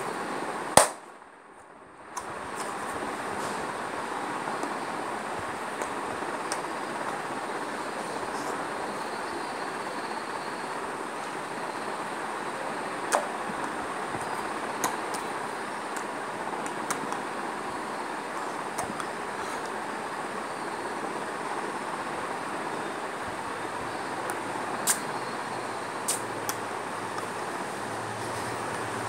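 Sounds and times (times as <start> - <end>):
faint high whine: 0.0 - 29.0
rushing background noise: 0.0 - 29.0
short sharp clicks: 24.8 - 25.1.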